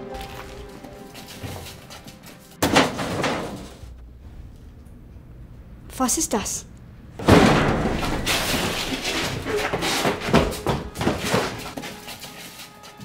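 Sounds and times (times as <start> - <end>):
metal rattling and knocking: 1.3 - 4.0, 7.2 - 13.0
metal cabinet doors banging open: 2.6 - 4.0, 7.2 - 11.8.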